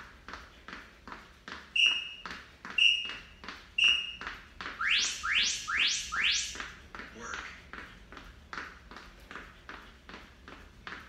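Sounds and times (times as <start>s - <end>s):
short electronic beeps: 1.8s - 2.2s, 2.8s - 4.2s, 4.8s - 6.6s
rising electronic chirps: 2.8s - 3.2s, 3.8s - 4.2s, 4.8s - 6.7s.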